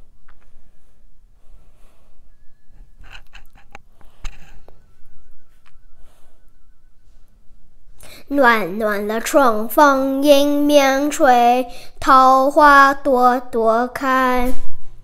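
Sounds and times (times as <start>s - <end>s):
children breathing: 0.5s - 2.4s, 5.9s - 7.2s, 7.9s - 8.3s, 11.7s - 12.0s.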